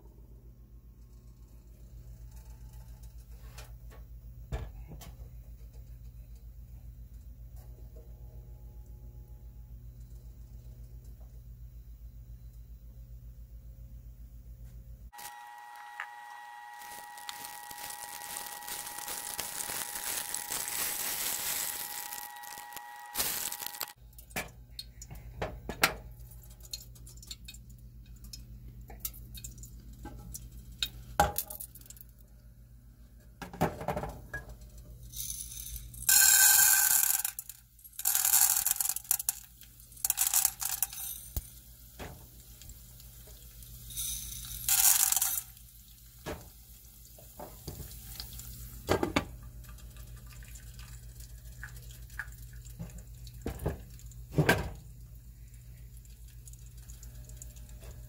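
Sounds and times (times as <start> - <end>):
hot oil sizzling: 15.2 - 24.0, 35.1 - 49.3.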